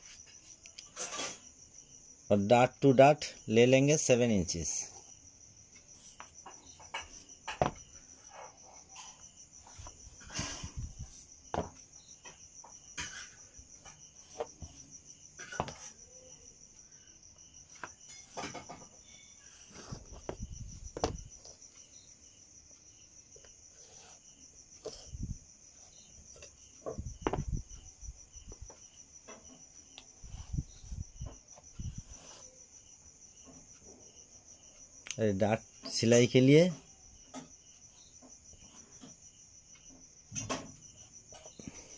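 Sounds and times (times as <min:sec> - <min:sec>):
cricket trilling: 0:00.0 - 0:41.9
chalk drawing lines: 0:23.7 - 0:24.2, 0:31.8 - 0:32.6
steel ruler knocking on cloth: 0:27.0 - 0:27.6.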